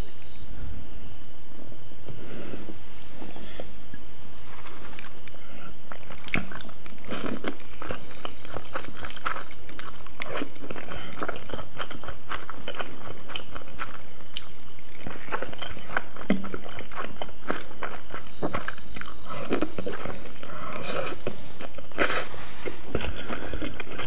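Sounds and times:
slurping and chewing noodles: 4.8 - 24.0.

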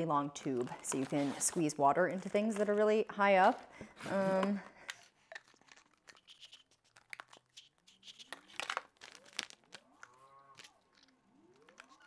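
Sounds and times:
plastic packaging crinkling: 5.0 - 12.0.

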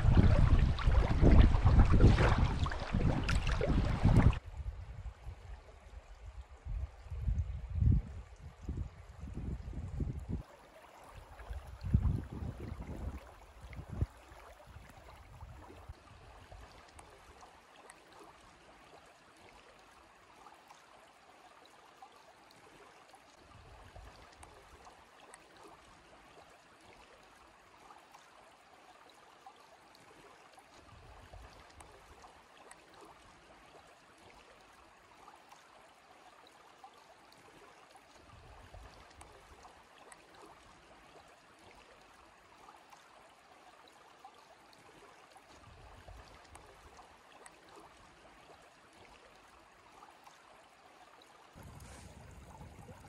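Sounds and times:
river flowing over gravel: 0.0 - 4.4, 51.5 - 53.0
soft low rumbles: 0.0 - 10.4, 51.6 - 53.0.

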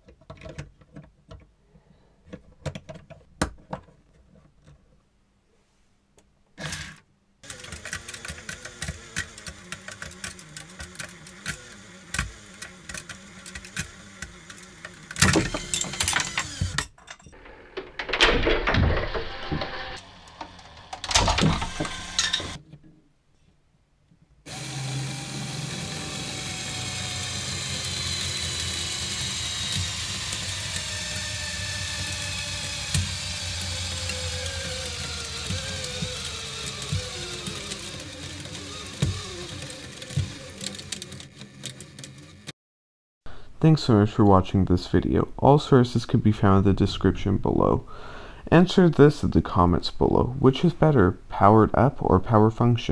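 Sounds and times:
gears clicking rapidly: 6.6 - 16.8, 26.2 - 42.5
loud grinding bursts: 6.6 - 16.8, 24.5 - 42.5
motor drone: 6.6 - 16.8, 24.5 - 42.5.

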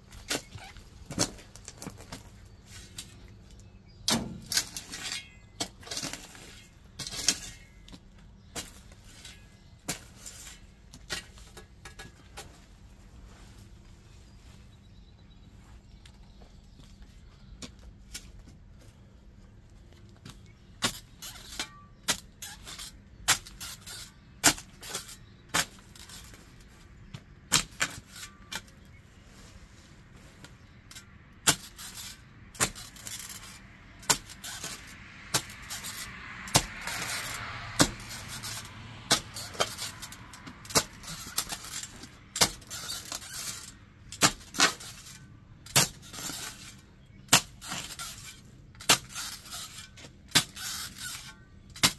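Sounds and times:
spade chopping into soil: 4.1 - 5.0, 32.6 - 33.2, 34.0 - 39.9, 40.7 - 43.3, 44.2 - 44.9, 45.7 - 48.2, 48.8 - 49.6
spade scraping on concrete: 4.2 - 12.2, 20.9 - 29.9, 30.6 - 51.9.

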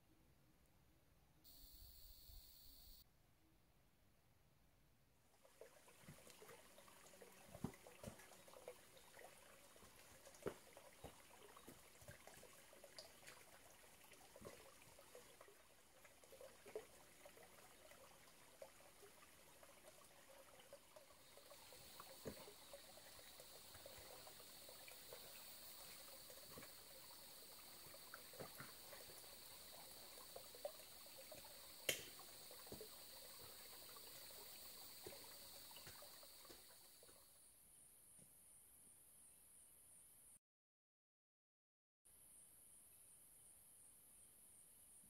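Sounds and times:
steady high-pitched hum: 1.5 - 3.0
stream trickling over rocks: 5.4 - 37.2.

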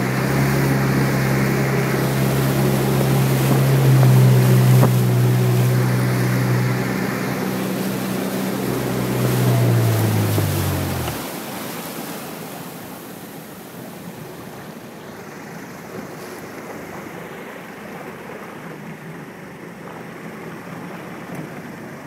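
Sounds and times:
wind noise on microphone: 0.0 - 11.2
faint low engine hum: 0.0 - 11.4
calm sea water washing: 0.0 - 22.0.

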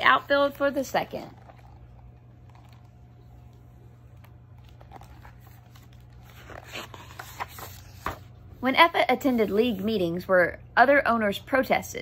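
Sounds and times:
steady low hum: 0.0 - 12.0
paper rustling: 0.9 - 8.3.

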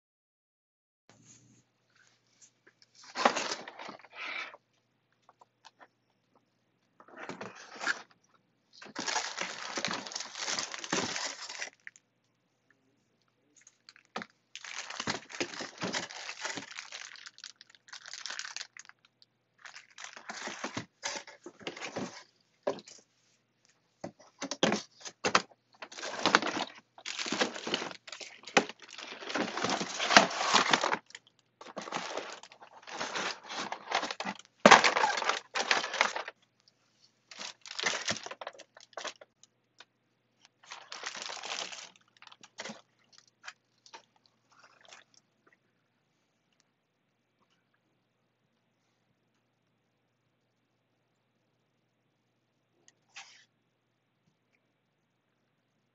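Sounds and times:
plastic bags crinkling: 8.7 - 12.0, 13.6 - 22.8, 24.6 - 36.4, 37.3 - 39.3, 40.6 - 45.1.

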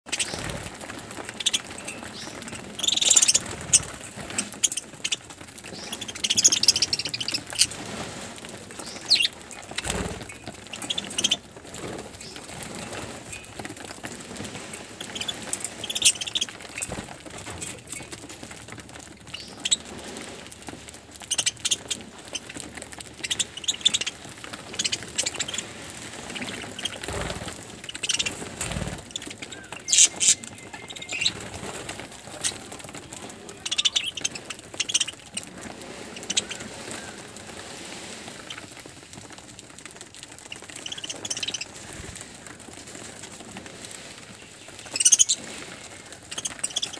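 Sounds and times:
wings flapping: 0.0 - 46.9
budgerigars chattering: 1.3 - 7.8, 8.8 - 11.4, 15.0 - 17.0, 23.2 - 31.5, 33.5 - 35.5, 36.2 - 37.2, 46.4 - 46.9.

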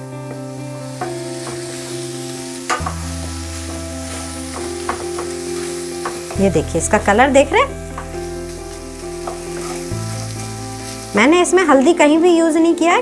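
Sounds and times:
background music: 0.0 - 13.0
frying sizzle: 0.0 - 13.0
spatula scraping and tapping pan: 4.1 - 6.4.

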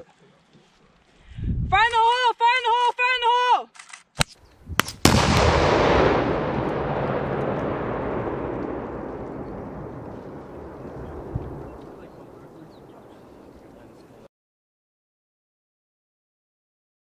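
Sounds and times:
explosive blast: 4.7 - 14.0
long rumble: 5.0 - 13.0.

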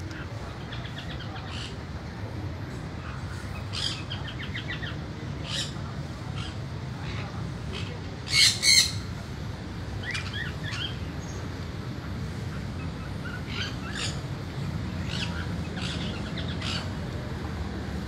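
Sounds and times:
parrot squawking: 8.3 - 9.0.

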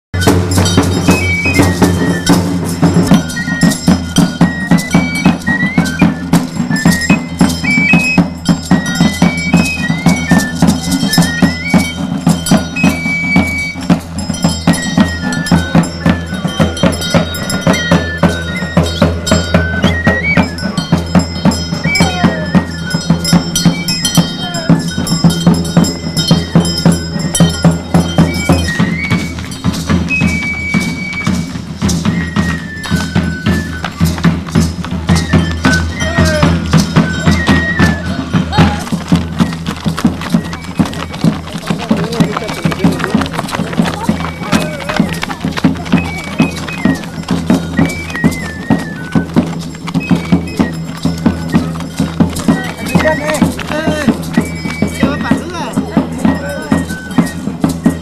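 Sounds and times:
fast drum and percussion strikes: 0.1 - 58.0
high flute melody: 0.2 - 58.0.

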